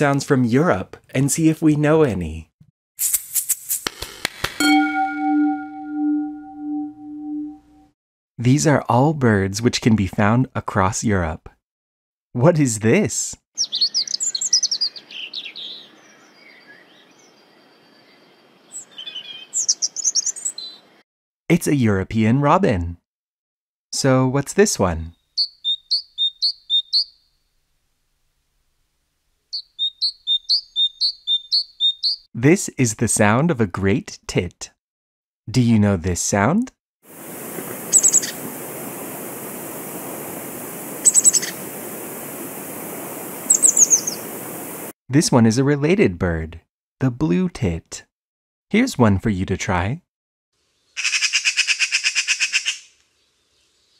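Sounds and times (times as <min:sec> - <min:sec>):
robin singing: 0:04.6 - 0:07.6, 0:13.6 - 0:20.9, 0:25.1 - 0:27.2, 0:29.5 - 0:32.3, 0:37.9 - 0:38.4, 0:41.0 - 0:41.6, 0:43.4 - 0:44.3
blue tit calling: 0:13.6 - 0:17.4, 0:18.7 - 0:20.8, 0:25.4 - 0:27.2, 0:29.5 - 0:32.3, 0:37.9 - 0:38.4, 0:41.0 - 0:41.6, 0:43.4 - 0:44.3
steady hiss: 0:37.1 - 0:44.9.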